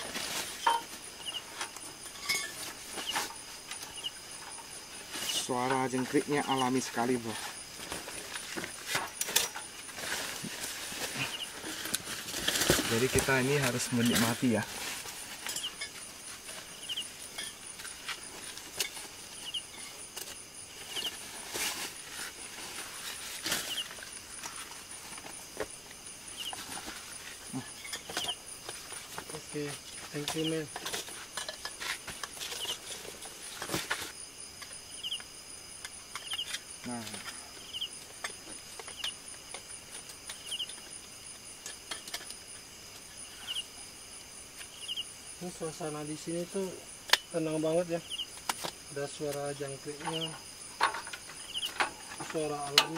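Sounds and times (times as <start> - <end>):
crickets chirping: 0.0 - 52.9.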